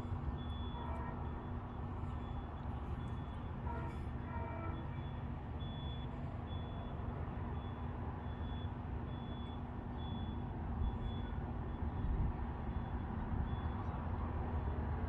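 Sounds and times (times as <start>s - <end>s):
crossing warning bell dinging: 0.0s - 13.9s.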